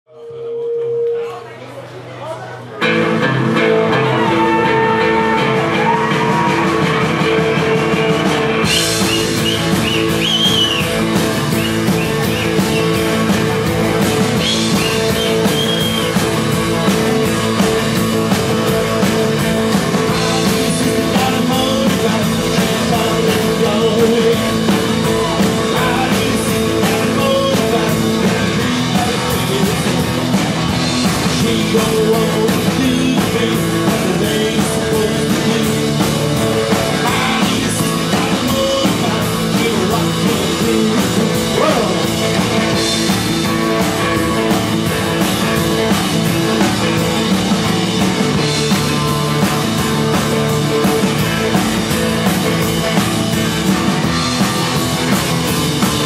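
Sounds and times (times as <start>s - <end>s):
electric guitar: 2.6s - 56.0s
upright bass: 2.6s - 56.0s
drum kit: 2.8s - 56.0s
man singing: 19.1s - 43.1s.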